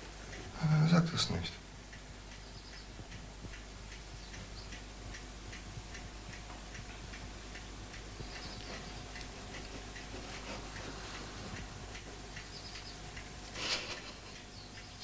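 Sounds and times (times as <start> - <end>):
clock ticking: 1.8 - 10.9.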